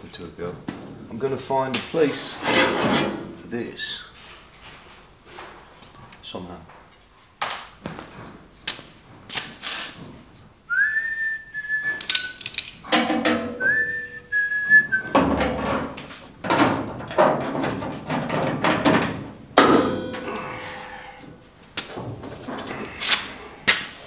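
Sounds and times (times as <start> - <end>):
person whistling: 10.7 - 12.4, 13.6 - 15.1
knocks and clatter: 12.8 - 13.8, 14.7 - 20.6, 21.7 - 22.9.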